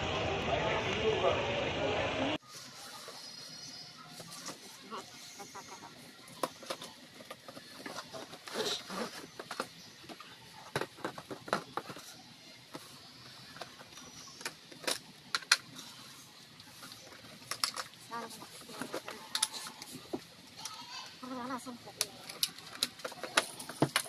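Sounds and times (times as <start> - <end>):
cardboard and plastic packaging handled: 6.0 - 20.4.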